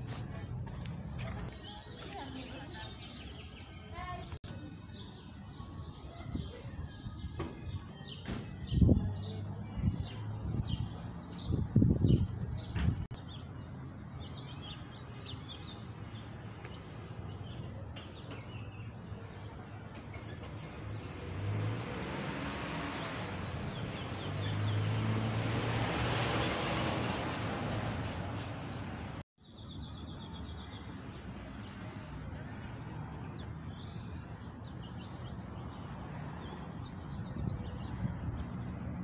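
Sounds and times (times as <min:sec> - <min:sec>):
car passing: 0:20.8 - 0:29.2.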